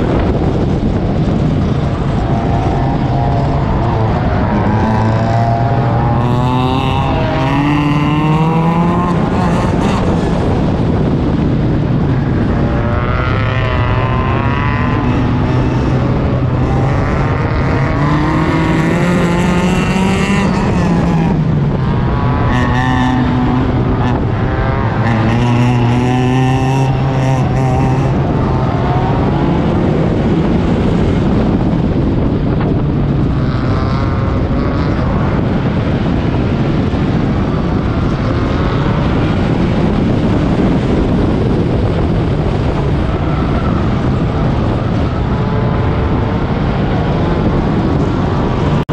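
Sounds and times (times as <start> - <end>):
race car engine revving: 0.0 - 48.9.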